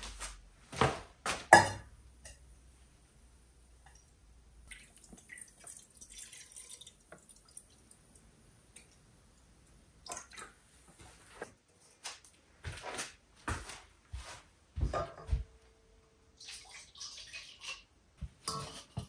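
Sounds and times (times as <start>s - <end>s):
water splashing in a sink: 4.6s - 9.1s, 10.0s - 10.6s, 16.4s - 17.9s.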